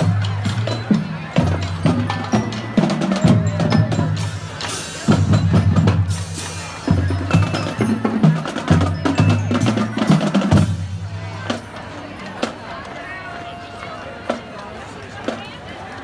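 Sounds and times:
sharp percussion strikes: 0:00.0 - 0:11.2
steady drum beats: 0:00.0 - 0:13.0.

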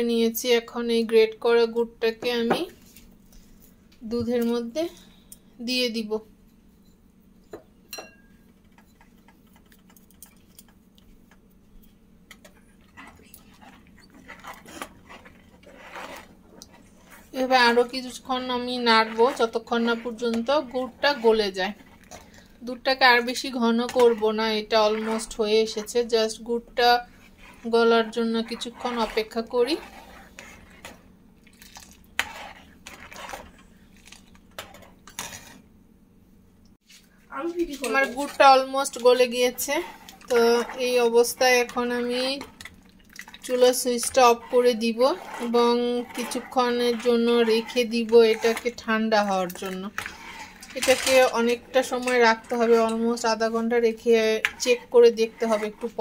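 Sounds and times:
spoon stirring in a saucepan: 0:06.4 - 0:35.8, 0:36.8 - 0:56.0.

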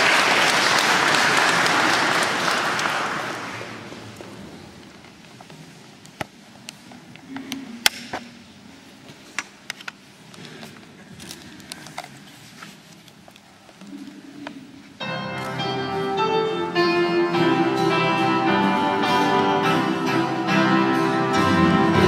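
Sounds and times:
applause: 0:00.0 - 0:04.2.

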